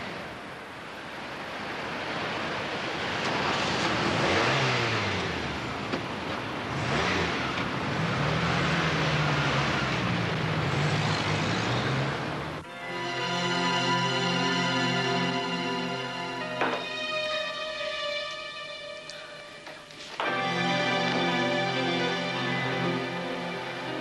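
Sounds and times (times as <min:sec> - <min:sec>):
tyre and road noise: 0:00.0 - 0:12.7
cars driving past: 0:00.0 - 0:24.0
steady engine hum: 0:00.0 - 0:24.0.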